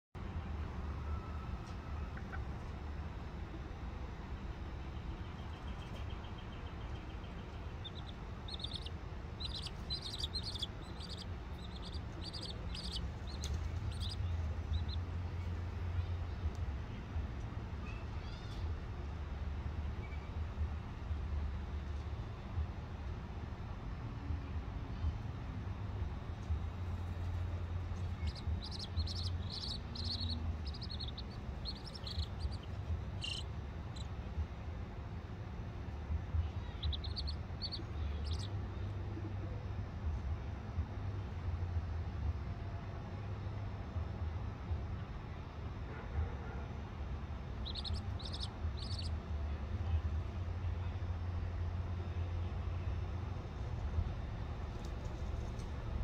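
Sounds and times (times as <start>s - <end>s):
chicks peeping: 7.2s - 15.1s, 27.2s - 34.1s, 36.7s - 38.5s, 47.6s - 49.1s
low rumble: 26.1s - 34.8s.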